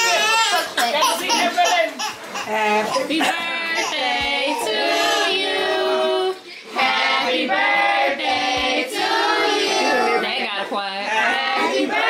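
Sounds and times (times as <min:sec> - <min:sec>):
voices singing together: 0:03.0 - 0:12.0.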